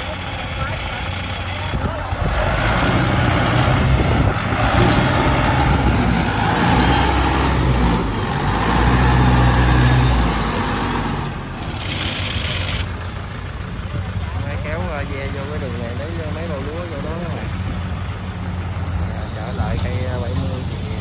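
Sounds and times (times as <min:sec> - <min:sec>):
engine running steadily: 0:00.0 - 0:21.0.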